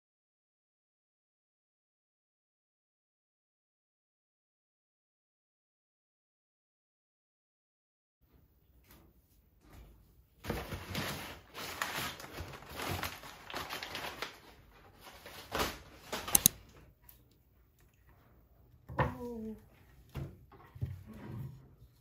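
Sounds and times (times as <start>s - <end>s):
packing paper rustling and crackling: 10.4s - 16.6s
sharp clicks: 16.3s - 16.6s.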